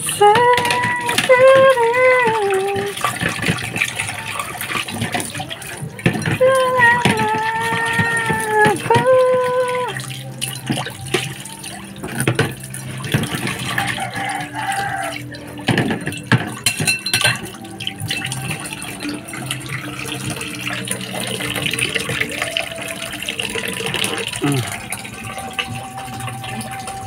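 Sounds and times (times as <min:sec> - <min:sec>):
tap water running into sink: 0:00.0 - 0:27.0
plate and spoon clinking: 0:15.7 - 0:17.4.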